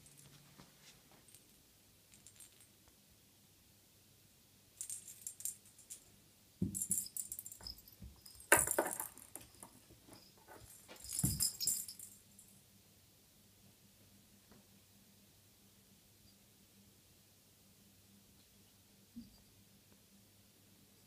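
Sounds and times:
cat toy jingling rattle: 6.7 - 12.2.

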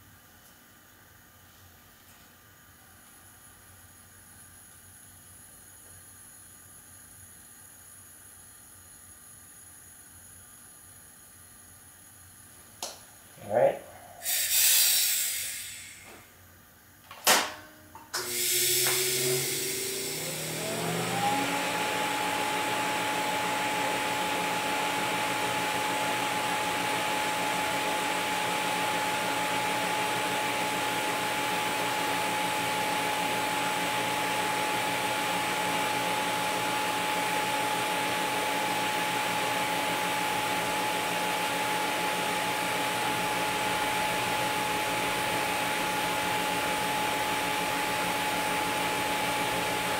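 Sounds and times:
welding arc hissing and whining: 13.6 - 16.2, 18.2 - 20.5.

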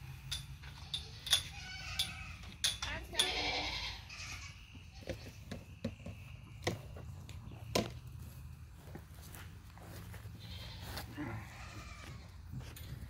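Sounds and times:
goat kid bleating: 0.8 - 2.4, 3.1 - 5.3, 10.4 - 12.4
hooves knocking on wood: 5.0 - 8.0.

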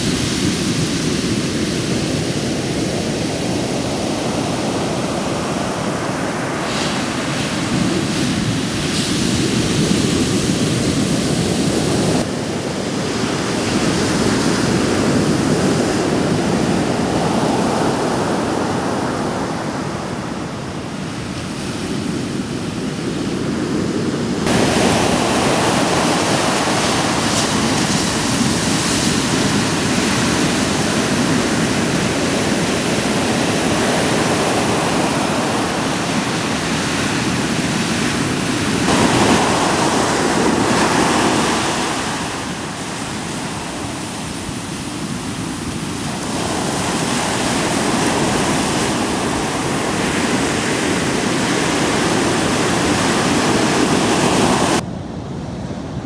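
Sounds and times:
surf breaking on beach: 0.0 - 22.4, 23.7 - 54.8.

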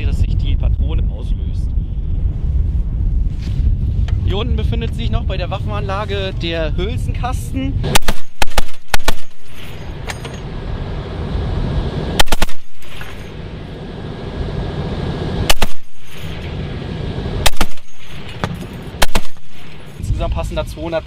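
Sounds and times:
steady low rumble: 0.0 - 21.0
heavy machine gun bursts: 7.9 - 9.9, 12.2 - 13.3, 15.5 - 16.5, 17.4 - 20.0.

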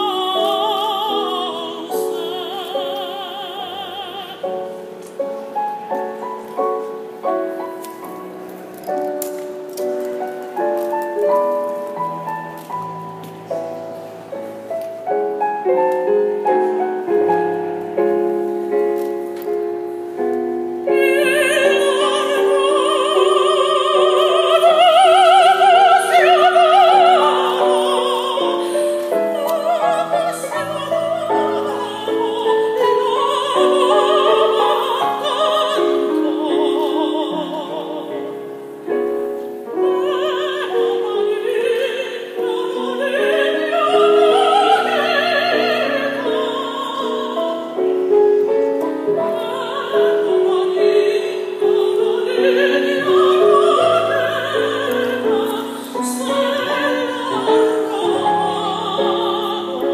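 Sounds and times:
operatic high voice singing: 0.0 - 4.8, 20.9 - 38.5, 39.7 - 48.2, 49.0 - 59.9
piano accompaniment: 0.0 - 59.9.

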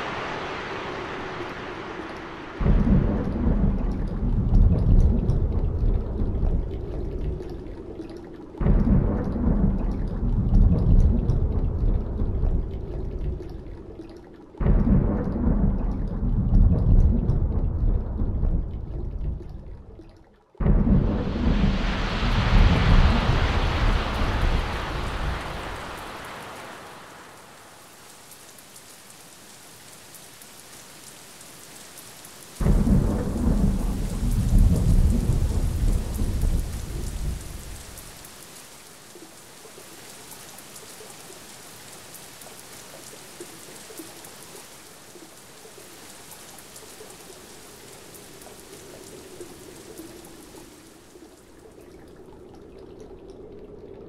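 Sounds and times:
thunder rumbling: 0.0 - 7.5, 14.6 - 19.5, 20.6 - 27.8, 32.6 - 38.2
steady rain hiss: 0.0 - 16.4, 20.9 - 54.0.

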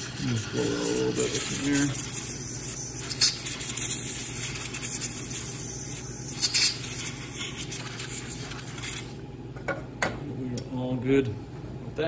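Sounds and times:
compressed air blasts hissing: 0.0 - 9.2.

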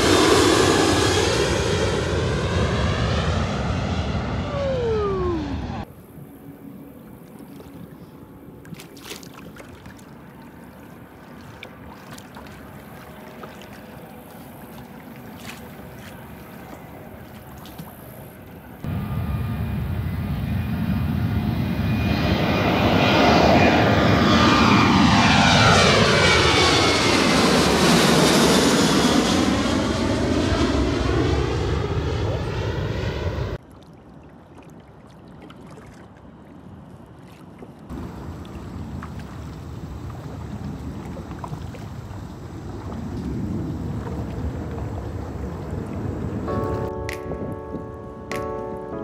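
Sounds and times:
jet airliner roar: 0.0 - 7.0, 13.0 - 33.6, 37.9 - 46.9
water lapping at kayak: 5.9 - 18.9, 33.6 - 47.5.

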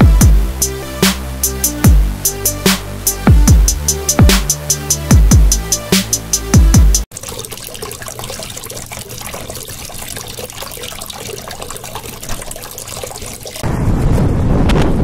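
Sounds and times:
fountain water splashing and trickling: 7.1 - 13.6.

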